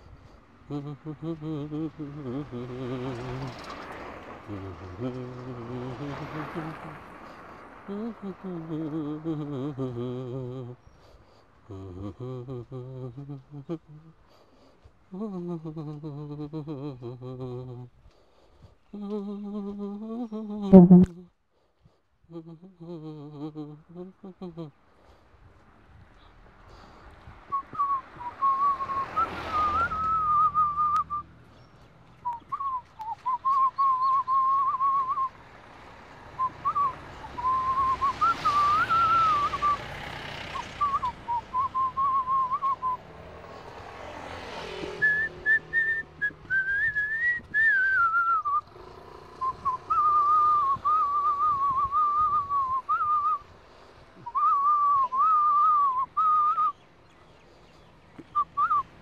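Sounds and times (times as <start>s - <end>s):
person whistling a tune: 27.5s - 31.3s, 32.2s - 35.4s, 36.4s - 39.9s, 40.5s - 43.0s, 45.0s - 48.7s, 49.4s - 53.5s, 54.2s - 56.8s, 58.2s - 58.9s.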